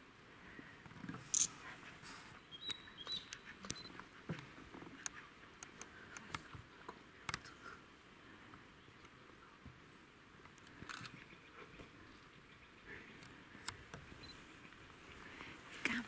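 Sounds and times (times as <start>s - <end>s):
small bird chirping: 1.3s - 1.6s, 2.4s - 4.0s.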